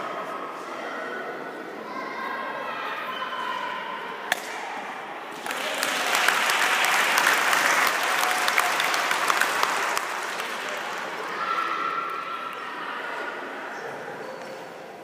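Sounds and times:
crowd applauding: 5.3 - 12.6.

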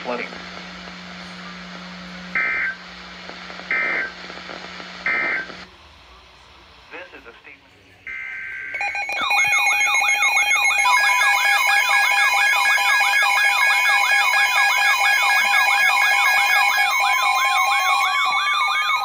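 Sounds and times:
beeping tones: 8.1 - 19.0
rising whoop alarm: 8.7 - 19.0.

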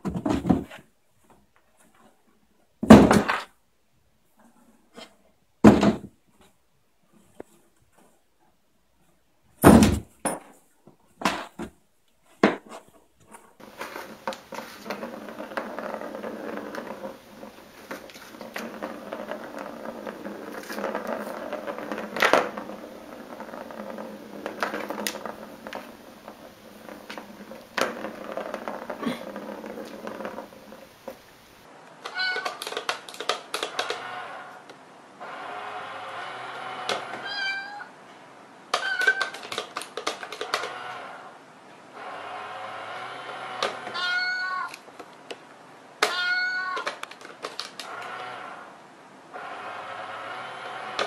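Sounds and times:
cat meowing: 32.1 - 32.6, 37.2 - 37.9, 43.9 - 44.8, 46.0 - 46.9.

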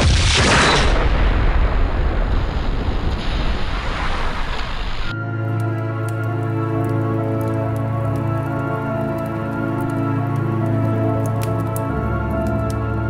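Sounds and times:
music with sustained tones: 5.1 - 13.0.

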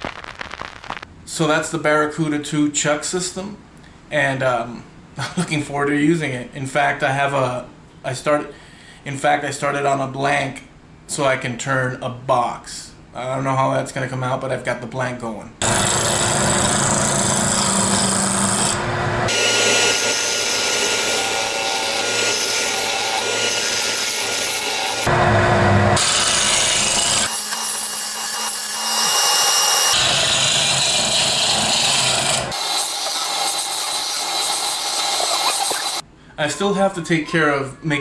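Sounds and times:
lathe motor hum: 15.7 - 25.1
sandpaper rubbing wood: 32.5 - 36.0.

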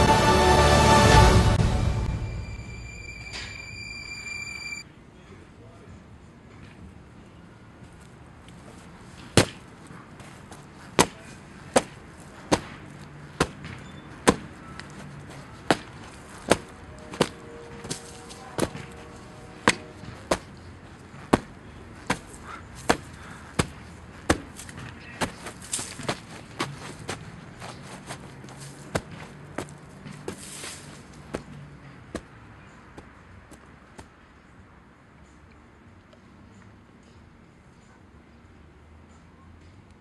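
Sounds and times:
boot stomping on pumpkin: 21.3 - 30.6.

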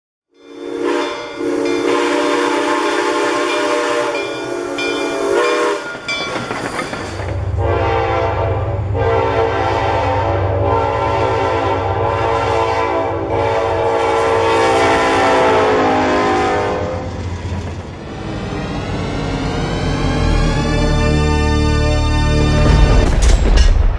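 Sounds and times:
diesel train horn blasts: 0.4 - 6.0, 7.5 - 17.2
steam locomotive chime whistle: 0.4 - 6.9, 7.6 - 17.1
locomotives rumbling: 5.8 - 11.4.

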